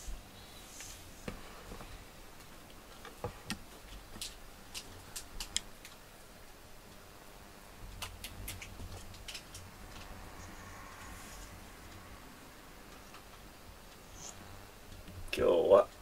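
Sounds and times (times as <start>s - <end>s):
faint small clicks and ticks: 2.4s - 6.0s.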